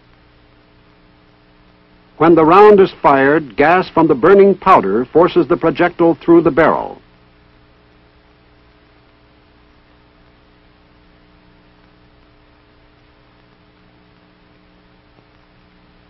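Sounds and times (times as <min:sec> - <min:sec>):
faint electrical hum: 0:00.0 - 0:16.0
even hiss: 0:02.0 - 0:07.0.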